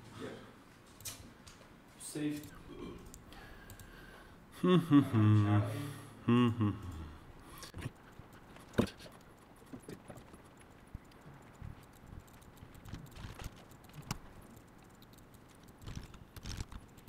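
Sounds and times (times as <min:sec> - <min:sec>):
mouse and keyboard clicks: 0:07.7 - 0:17.0.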